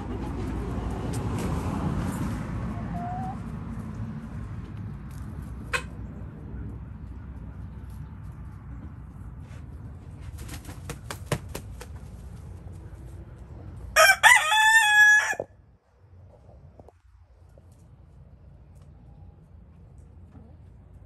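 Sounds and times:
rooster crowing: 0:14.0 - 0:15.5.

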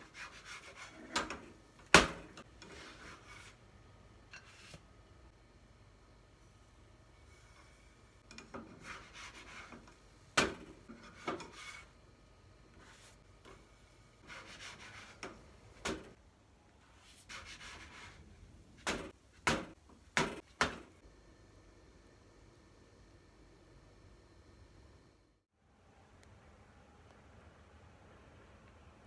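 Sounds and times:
spatula scraping frying pan: 0:08.3 - 0:09.9, 0:10.9 - 0:11.9.

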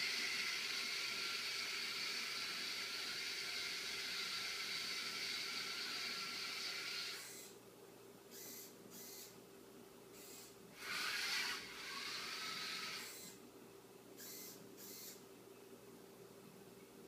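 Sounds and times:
robot drive motors whirring: 0:00.0 - 0:07.6, 0:08.3 - 0:09.3, 0:10.2 - 0:13.4, 0:14.2 - 0:15.2
servo whirring: 0:00.0 - 0:07.6, 0:10.2 - 0:13.4.

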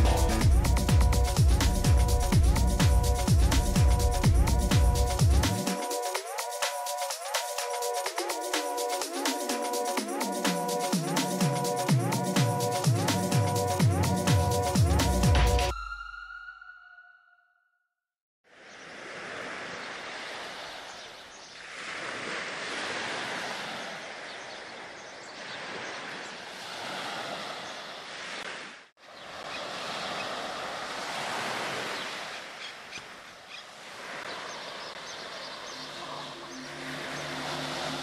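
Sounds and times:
small waves washing onto beach: 0:18.5 - 0:38.0.

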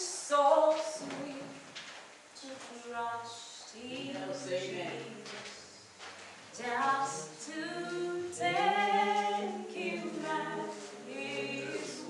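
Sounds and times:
unaccompanied voices singing: 0:02.4 - 0:05.8, 0:06.5 - 0:12.0.

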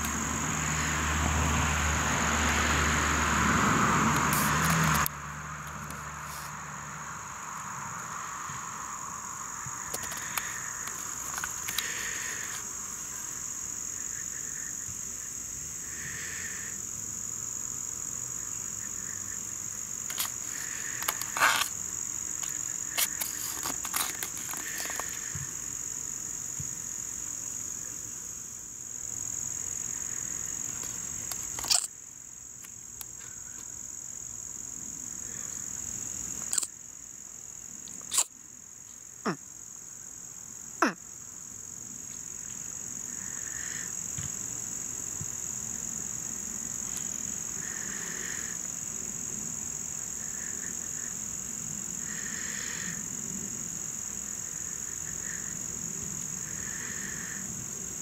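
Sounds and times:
high-pitched insect drone: 0:00.0 - 0:38.6, 0:39.2 - 0:58.0.

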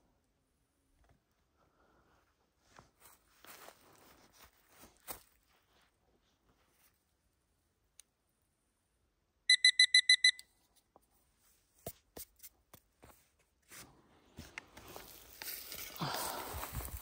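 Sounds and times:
short high electronic beeps: 0:09.5 - 0:10.4.

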